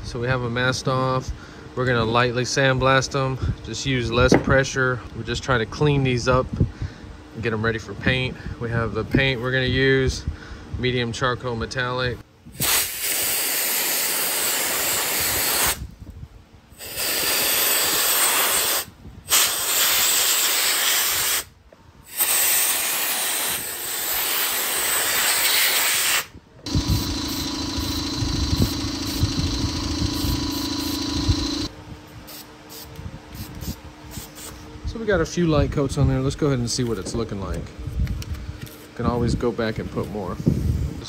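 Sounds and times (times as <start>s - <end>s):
steady hum with low rumble: 0.0s - 13.0s, 26.2s - 41.0s
sandblast gun hissing: 12.5s - 15.8s, 16.8s - 31.7s.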